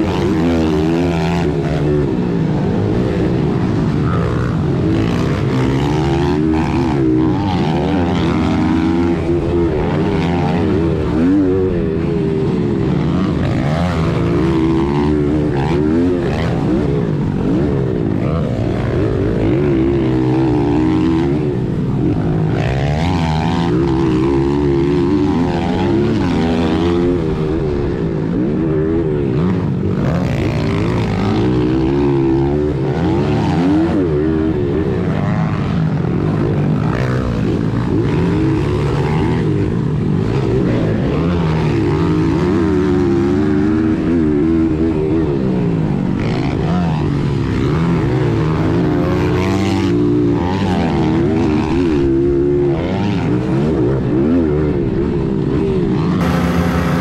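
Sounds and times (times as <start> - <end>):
pit bike engine revving: 56.2 - 57.0.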